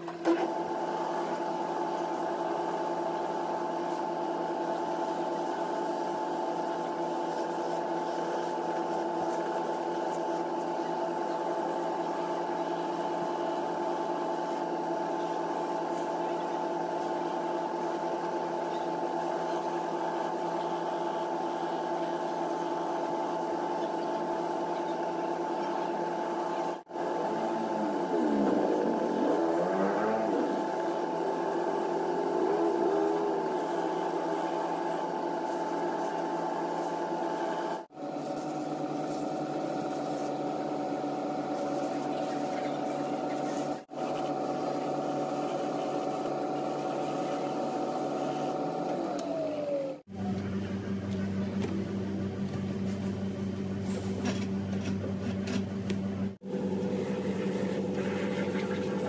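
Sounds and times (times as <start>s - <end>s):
finishing machine humming: 25.7s - 37.9s, 56.4s - 59.0s.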